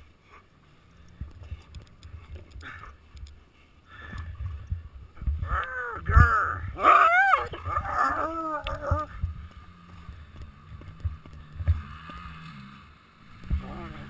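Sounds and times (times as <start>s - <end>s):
muffled thumps and rustling: 1.2s - 5.5s, 8.7s - 12.3s.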